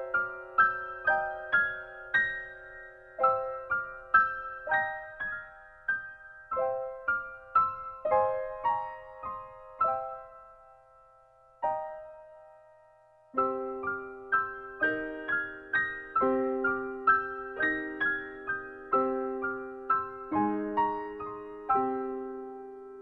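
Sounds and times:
soft piano music: 0.0s - 23.0s.

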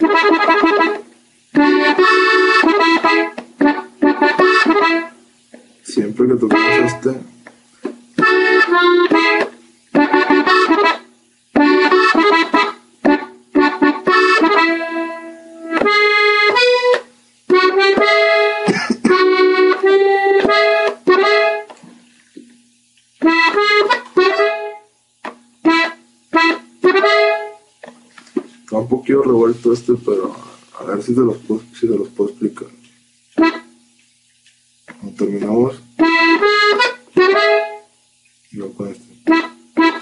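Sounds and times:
button accordion melody: 0.0s - 5.2s, 6.4s - 7.2s, 8.2s - 21.7s, 23.2s - 24.9s, 25.6s - 27.6s, 33.4s - 33.7s, 36.0s - 37.9s, 39.2s - 40.0s.

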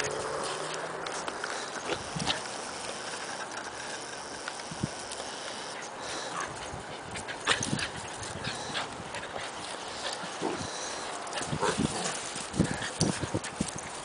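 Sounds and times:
puppy noises: 5.1s - 14.0s.

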